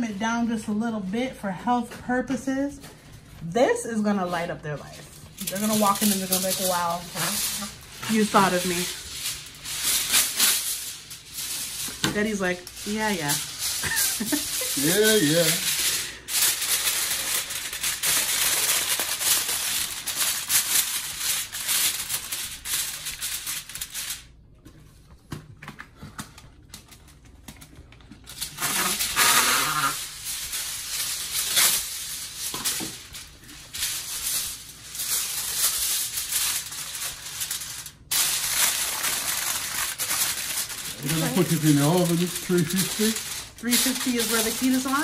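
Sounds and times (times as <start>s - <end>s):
rustling and clatter of food: 4.2s - 45.0s.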